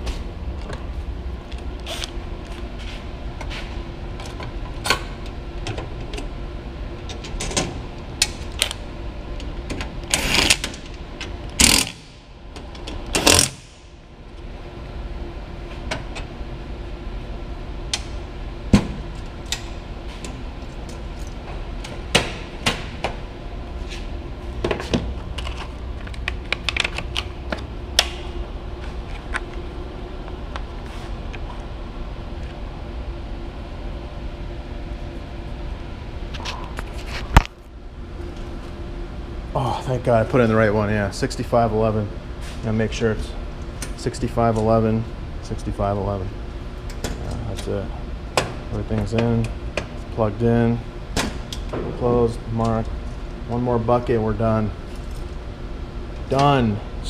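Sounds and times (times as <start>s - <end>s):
steady background hum: 0.0s - 57.0s.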